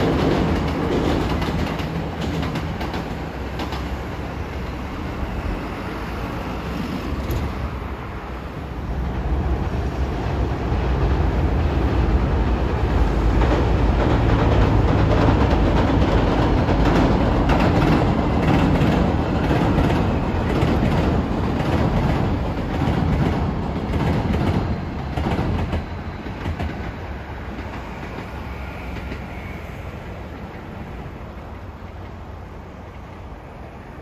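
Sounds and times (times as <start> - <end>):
wheel clacks over rail joints: 0.0 - 4.1, 13.3 - 29.4
electric train passing: 0.0 - 34.0.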